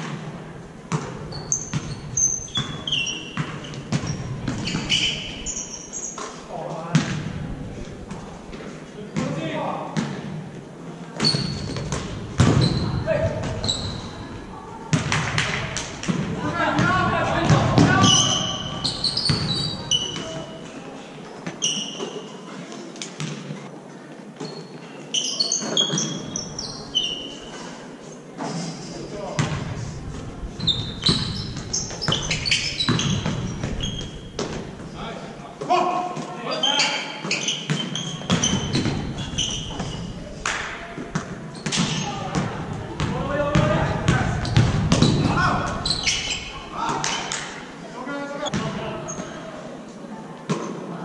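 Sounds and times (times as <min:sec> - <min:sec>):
sneaker squeaks: 0:00.9 - 0:07.1, 0:11.2 - 0:16.1, 0:17.5 - 0:20.8, 0:21.4 - 0:22.6, 0:24.4 - 0:27.7, 0:30.5 - 0:34.9, 0:36.2 - 0:40.4, 0:41.1 - 0:42.6, 0:43.4 - 0:47.6, 0:48.4 - 0:49.5
basketball bouncing: 0:06.9 - 0:07.3, 0:11.2 - 0:13.9, 0:31.0 - 0:34.7, 0:37.7 - 0:40.0, 0:41.1 - 0:45.4
basketball bouncing on wooden floor: 0:11.2 - 0:13.6.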